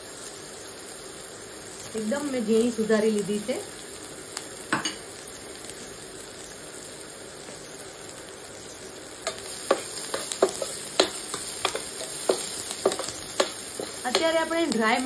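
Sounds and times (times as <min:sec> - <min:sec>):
cabbage sizzling in hot oil: 0:00.0 - 0:15.0
spatula scraping a pan: 0:09.2 - 0:14.4.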